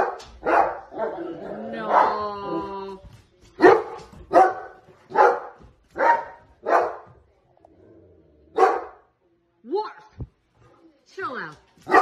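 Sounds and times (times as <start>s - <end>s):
dog barking: 0.0s - 2.7s, 3.6s - 7.1s, 8.5s - 9.1s.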